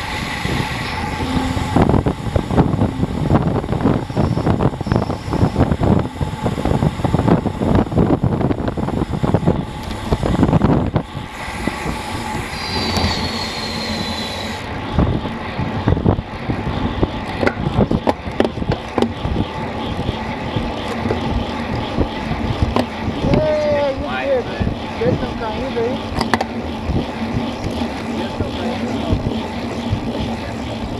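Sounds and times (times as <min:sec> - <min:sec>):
wind buffeting microphone: 0:00.0 - 0:30.9
bike brakes squealing: 0:12.4 - 0:14.7.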